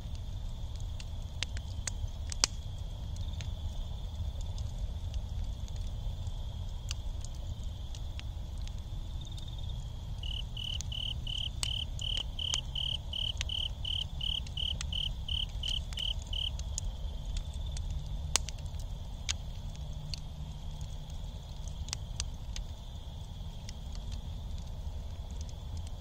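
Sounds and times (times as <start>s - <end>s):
campfire embers crackling: 0.0s - 26.0s
fire popping: 0.0s - 26.0s
insect chirps: 8.8s - 17.9s
insect trill: 9.0s - 16.6s.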